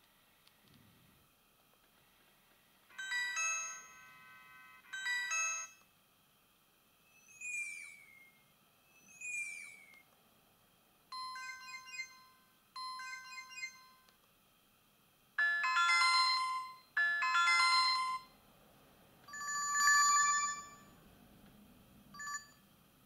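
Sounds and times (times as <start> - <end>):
ringing chime: 2.9 - 4.2, 4.9 - 5.8, 11.2 - 14.1, 19.3 - 21.0, 22.2 - 22.6
phone chime: 2.9 - 5.8, 11.1 - 14.1, 19.3 - 20.9, 22.2 - 22.6.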